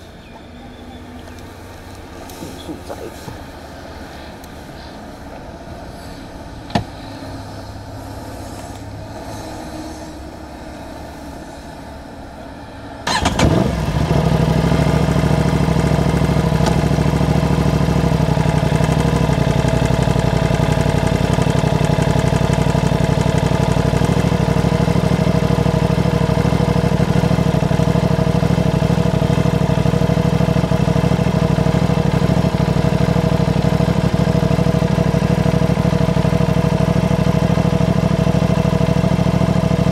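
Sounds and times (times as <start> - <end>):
motorcycle engine starting and idling: 12.9 - 39.9.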